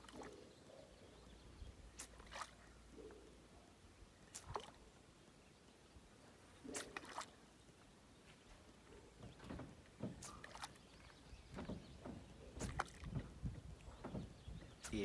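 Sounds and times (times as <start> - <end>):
water lapping around boat: 0.0 - 3.4, 4.2 - 4.9, 6.5 - 7.6, 8.4 - 15.0.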